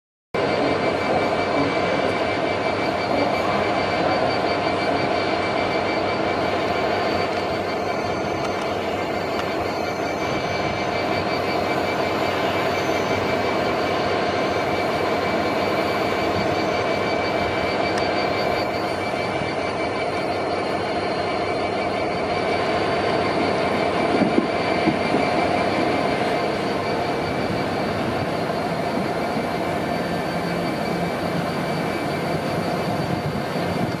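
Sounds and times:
high electric whine: 0:00.4 - 0:34.0
train wheels rumbling on rails: 0:00.4 - 0:34.0.

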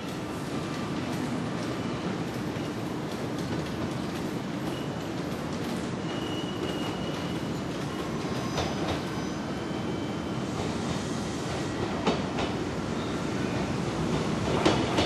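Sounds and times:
train rumbling: 0:00.0 - 0:15.0
high wheel squeal: 0:06.0 - 0:10.4.

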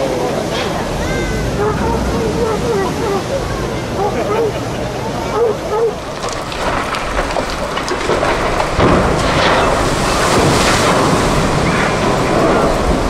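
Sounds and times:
wind buffeting microphone: 0:05.0 - 0:13.0
ship hull splashing into water: 0:05.9 - 0:13.0.

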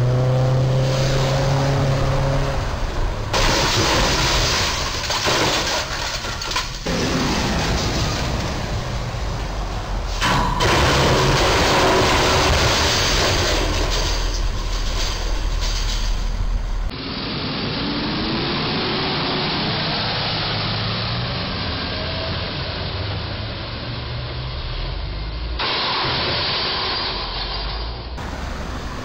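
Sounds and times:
road and wind noise: 0:00.0 - 0:29.0
truck engine running: 0:28.2 - 0:29.0.

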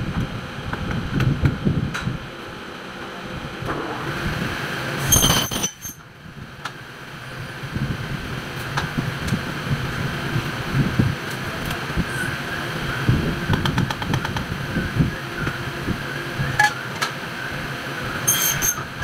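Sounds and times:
metal pieces clattering on table: 0:05.1 - 0:06.0
saw screeching through metal: 0:18.2 - 0:19.0.

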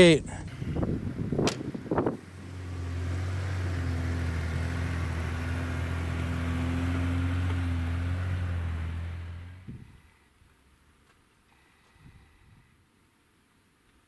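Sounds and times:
truck engine running: 0:00.1 - 0:10.1.

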